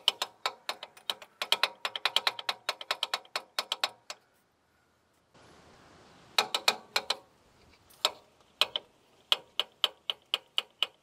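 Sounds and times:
ratchet wrench clicking: 0:00.0 - 0:04.2, 0:08.0 - 0:11.0.

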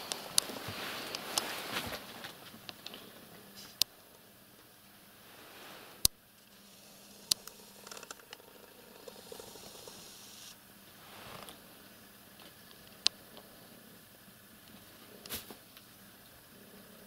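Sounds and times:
cat scuffling on carpet: 0:00.2 - 0:02.4.

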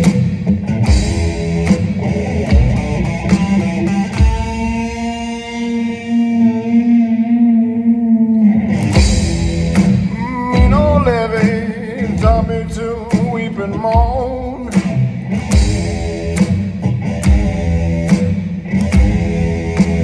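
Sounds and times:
electric guitar strumming: 0:00.0 - 0:20.0
man singing rock: 0:05.2 - 0:16.3.

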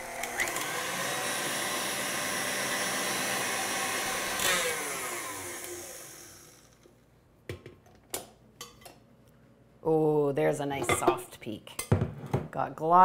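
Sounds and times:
stand mixer motor running: 0:00.0 - 0:06.7.

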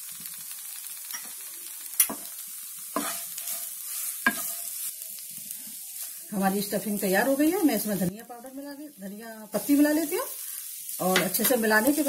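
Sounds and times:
faint sizzle: 0:00.0 - 0:12.0
wooden spatula scraping pan: 0:03.0 - 0:04.7.

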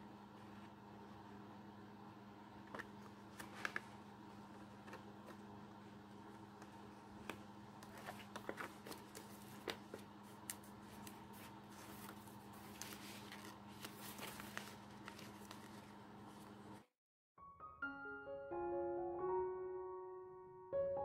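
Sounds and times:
faint steady hum: 0:00.0 - 0:16.9
cardstock crackling and rustling: 0:02.6 - 0:16.9.

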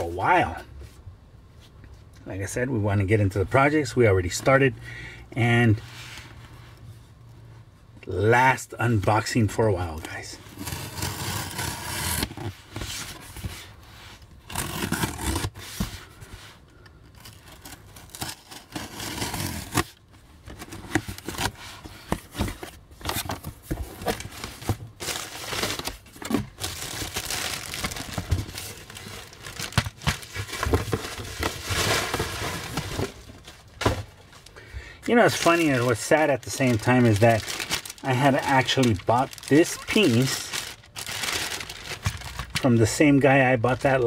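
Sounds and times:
paper and plastic tearing: 0:10.5 - 0:13.0, 0:14.4 - 0:15.8, 0:17.2 - 0:21.7, 0:22.3 - 0:33.5, 0:35.1 - 0:42.8.

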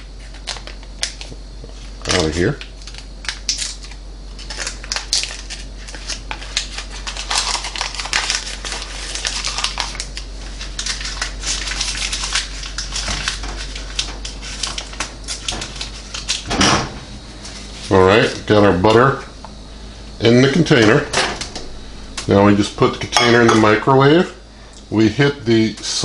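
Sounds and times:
paper wrapper crinkling: 0:02.1 - 0:16.5.

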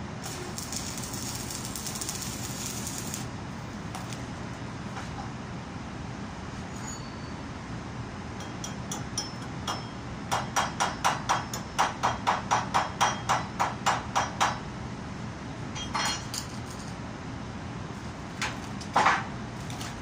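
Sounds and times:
hammer striking metal: 0:08.4 - 0:14.6.

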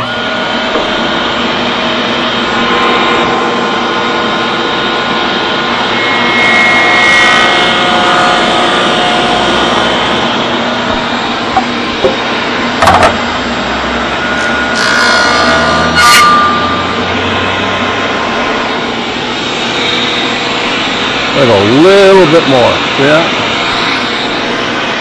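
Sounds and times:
table saw running: 0:00.0 - 0:25.0
sharp knocks: 0:11.5 - 0:12.2, 0:12.8 - 0:13.3.

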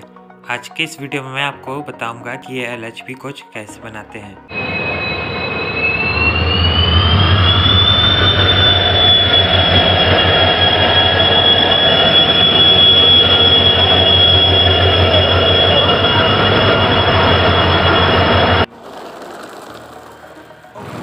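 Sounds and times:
high-pitched wheel squeal: 0:04.5 - 0:18.7
train rumble: 0:04.5 - 0:19.0.

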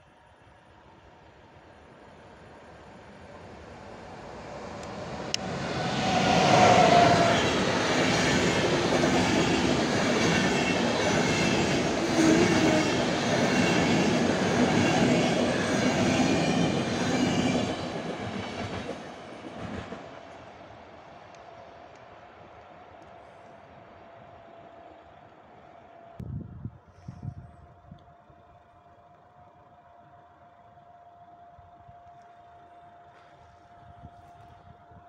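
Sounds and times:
electric locomotive whine: 0:00.0 - 0:35.0
train wheels rumbling on track: 0:01.4 - 0:23.6.

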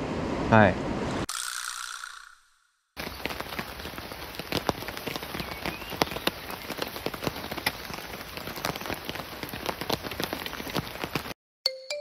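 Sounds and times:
raindrops ticking close by: 0:03.0 - 0:11.4
steady rain hiss: 0:03.0 - 0:11.4.

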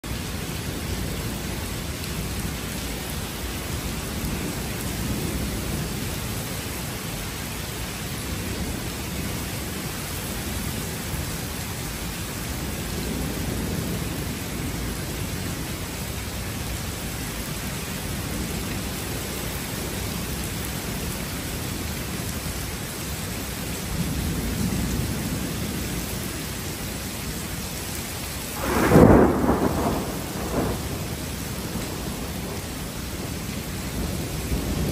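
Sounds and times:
steady rain: 0:00.0 - 0:34.9
thunder rumbling: 0:28.5 - 0:34.9
loud thunderclap: 0:28.6 - 0:34.9.

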